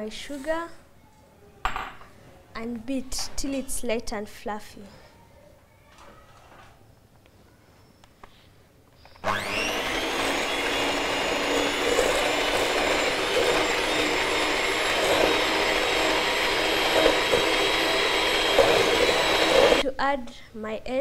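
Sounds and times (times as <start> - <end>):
beaters in a metal bowl: 9.2 - 19.8
electric hand mixer whining: 9.2 - 19.8.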